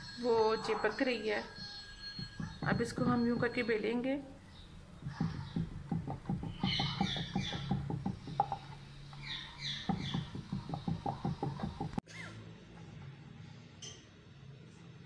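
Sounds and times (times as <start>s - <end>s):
rolling pin clicking on wooden board: 5.0s - 8.8s, 9.8s - 12.0s.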